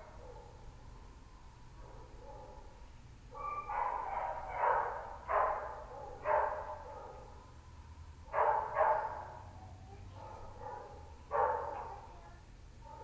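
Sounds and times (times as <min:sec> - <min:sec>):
dog barking: 0:00.0 - 0:00.6, 0:01.8 - 0:02.7, 0:03.4 - 0:07.4, 0:08.3 - 0:09.5, 0:10.1 - 0:12.1.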